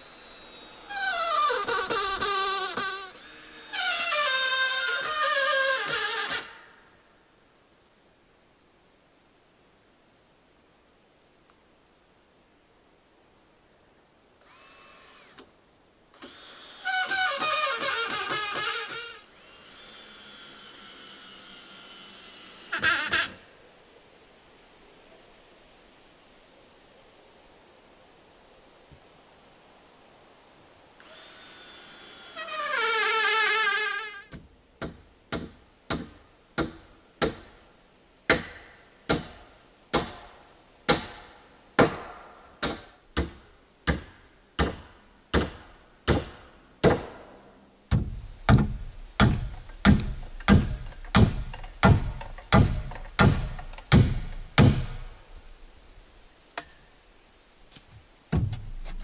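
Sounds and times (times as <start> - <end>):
hammer driving nails into wood: 47.9 - 55.1.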